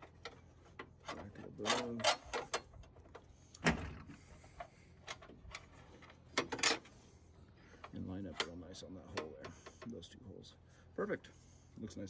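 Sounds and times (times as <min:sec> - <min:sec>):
metal bracket clicking and knocking: 0:00.0 - 0:03.9, 0:06.3 - 0:06.9.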